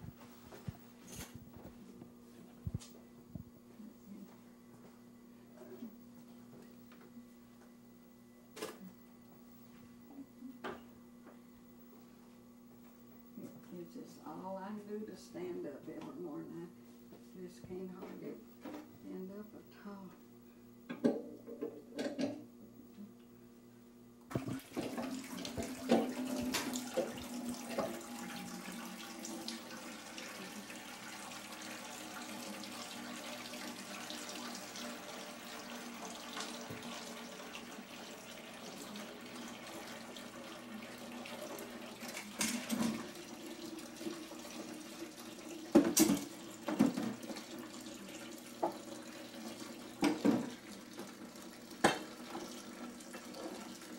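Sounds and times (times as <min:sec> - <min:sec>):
faucet running into a sink: 0:24.3 - 0:53.9.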